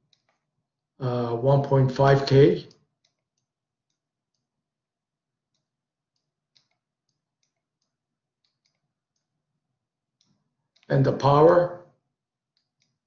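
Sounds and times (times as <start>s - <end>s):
stylus tapping on tablet screen: 5.5s - 9.3s.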